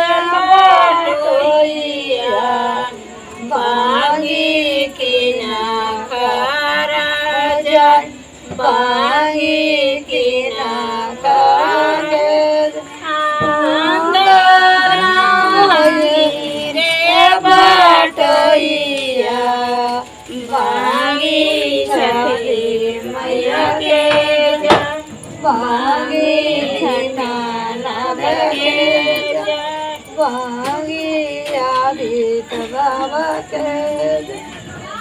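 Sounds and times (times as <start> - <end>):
women singing folk song: 0.0 - 35.0.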